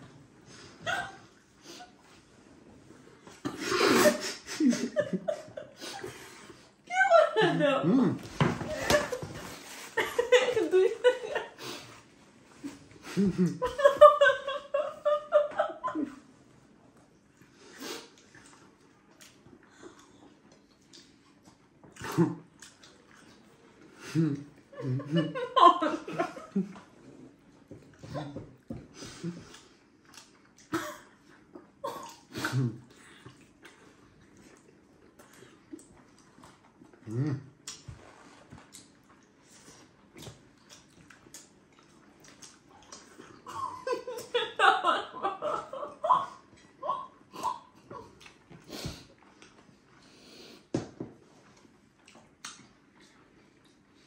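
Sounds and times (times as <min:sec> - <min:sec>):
wet eating and chewing: 0:17.0 - 0:25.1, 0:26.5 - 0:43.5, 0:46.4 - 0:50.2, 0:51.3 - 0:54.0.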